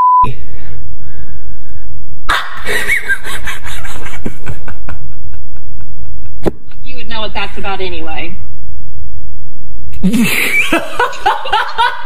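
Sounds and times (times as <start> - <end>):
man laughing loudly: 2.3 - 6.4, 10.0 - 12.0.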